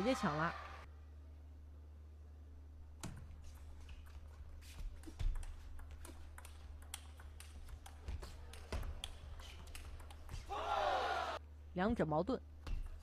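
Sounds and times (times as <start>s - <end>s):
table tennis ball clicking: 5.0s - 10.5s.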